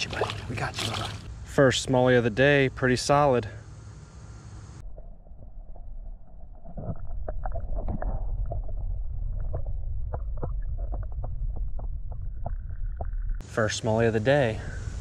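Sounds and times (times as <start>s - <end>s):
underwater river current rumble: 0.0s - 1.3s.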